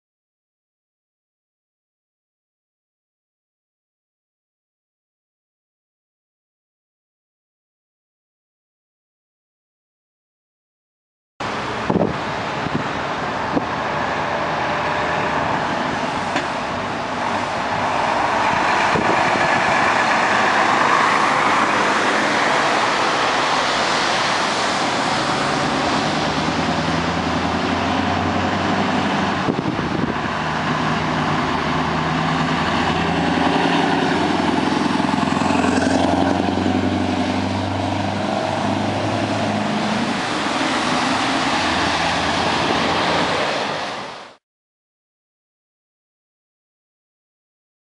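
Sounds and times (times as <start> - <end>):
low truck engine drone: 11.4 - 44.4
trucks driving past: 11.4 - 44.4.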